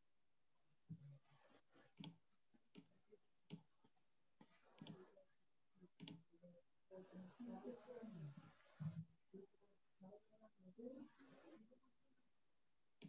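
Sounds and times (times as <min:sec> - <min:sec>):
computer mouse clicks: 0:01.7 - 0:05.2, 0:05.9 - 0:06.3.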